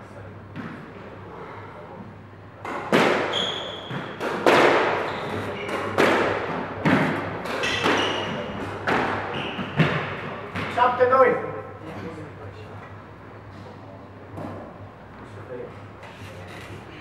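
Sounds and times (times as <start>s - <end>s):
ball hitting court walls: 2.6s - 10.8s
squash racket strikes: 2.6s - 10.9s
shoes squeaking on wooden floor: 3.3s - 4.2s, 5.0s - 5.8s.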